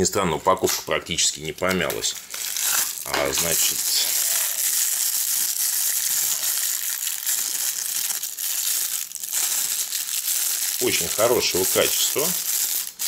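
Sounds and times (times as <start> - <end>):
plastic bag crinkling: 0.4 - 13.0.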